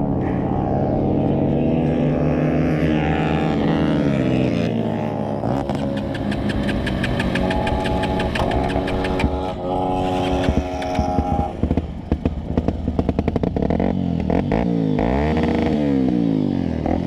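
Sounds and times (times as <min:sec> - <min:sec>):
dirt bike engine revving: 0:00.0 - 0:17.0
rapid even ticking: 0:05.8 - 0:09.4.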